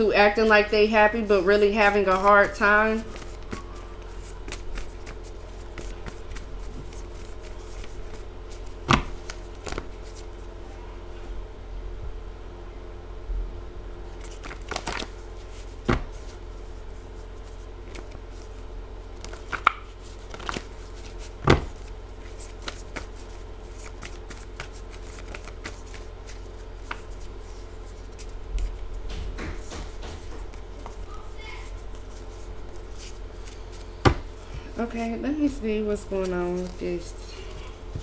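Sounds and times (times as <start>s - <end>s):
steady low hum: 0.0s - 38.0s
cards being shuffled: 1.3s - 10.5s, 14.2s - 18.6s, 19.2s - 38.0s
sharp knocks: 29.0s - 30.5s.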